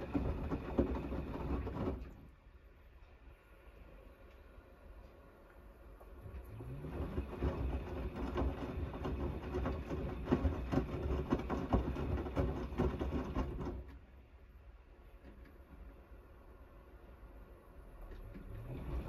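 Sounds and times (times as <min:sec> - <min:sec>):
laundry sloshing and thudding in drum: 0:00.0 - 0:02.4, 0:06.2 - 0:14.0
washing machine motor whine: 0:00.0 - 0:14.1, 0:15.0 - 0:19.0.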